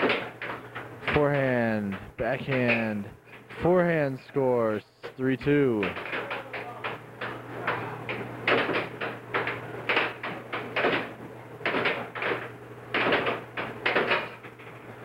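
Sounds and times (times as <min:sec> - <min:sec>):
air hockey puck clacking: 0:00.0 - 0:02.9, 0:05.8 - 0:14.6
steady low hum: 0:00.0 - 0:15.0.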